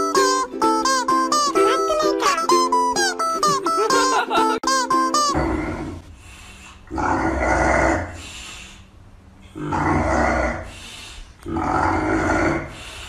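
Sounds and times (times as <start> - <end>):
animal growling: 5.4 - 6.0, 6.9 - 8.2, 9.5 - 10.7, 11.4 - 12.8.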